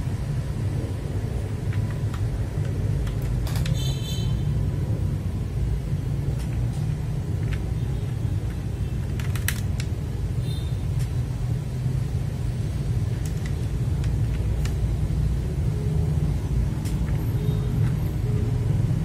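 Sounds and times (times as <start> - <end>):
steady low rumble: 0.0 - 3.6, 4.3 - 10.4
keyboard plastic clicks: 1.7 - 3.9, 8.4 - 10.0.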